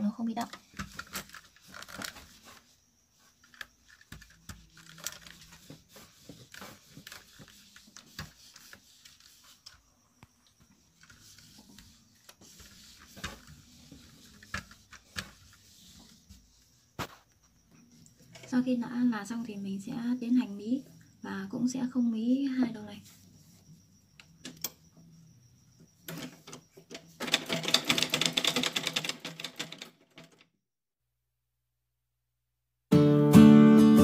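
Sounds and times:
fabric rustling and scraping: 0.7 - 9.8, 10.8 - 17.4.

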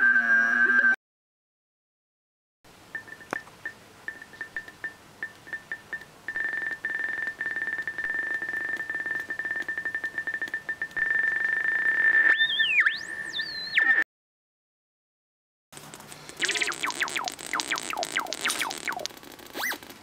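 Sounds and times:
fast clicking flutter: 15.8 - 20.0
synthesizer high steady tone: 16.4 - 19.1.

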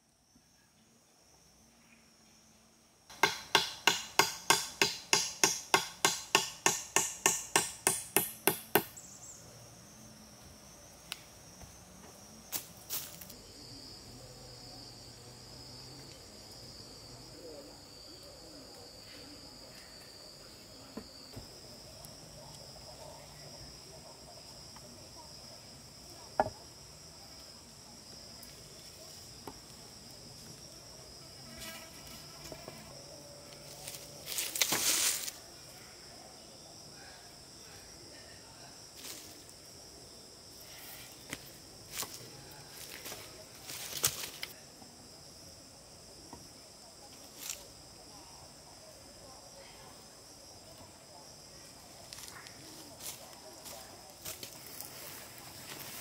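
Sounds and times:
high insect drone: 0.0 - 56.0
hammering on wood: 3.1 - 8.9, 26.4 - 26.6
single knocks: 26.4 - 26.6.

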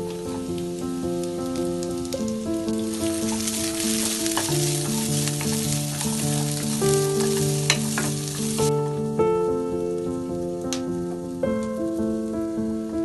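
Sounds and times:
onions sizzling in hot oil: 0.0 - 8.7
background music: 0.0 - 13.0.

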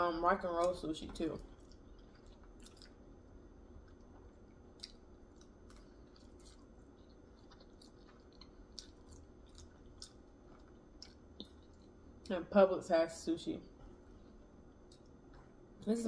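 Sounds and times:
person chewing food: 1.4 - 12.3, 14.0 - 15.6.

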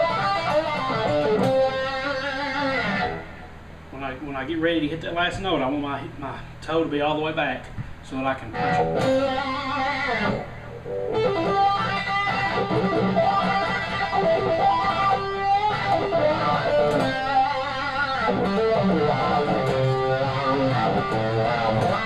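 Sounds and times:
electric guitar with wah pedal: 0.0 - 3.6, 8.5 - 22.0.

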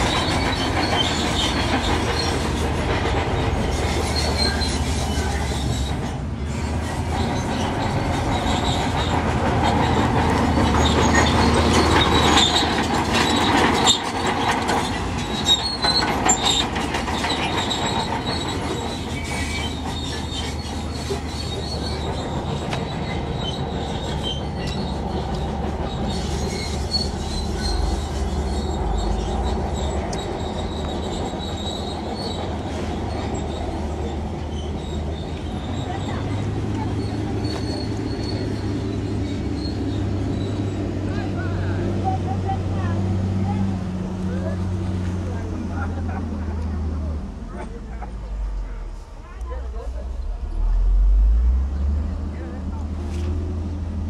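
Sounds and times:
metallic squealing and clanking: 0.0 - 41.8
diesel engine hum: 0.0 - 54.0.

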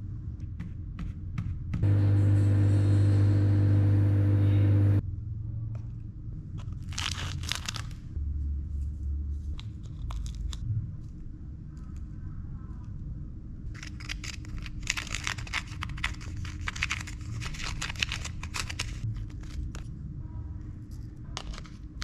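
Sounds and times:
microwave oven humming: 1.8 - 5.0
plastic packaging crinkling: 6.7 - 8.1, 13.7 - 19.9, 21.4 - 22.0
scissors snipping plastic sachet: 13.8 - 19.8.

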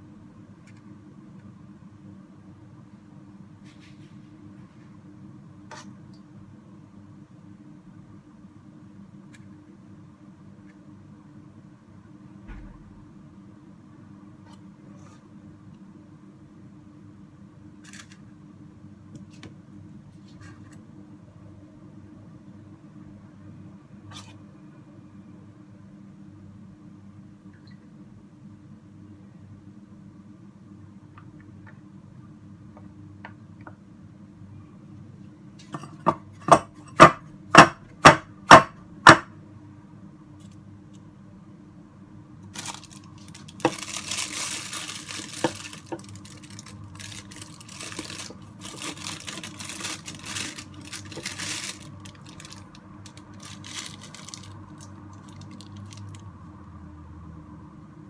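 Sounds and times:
plastic piping bag crinkling: 42.4 - 56.3.

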